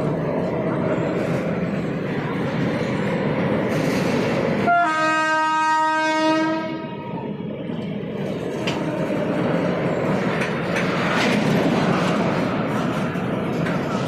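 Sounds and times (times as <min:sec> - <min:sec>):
freight train rumbling past: 0:00.0 - 0:14.0
locomotive horn blast: 0:04.6 - 0:06.9.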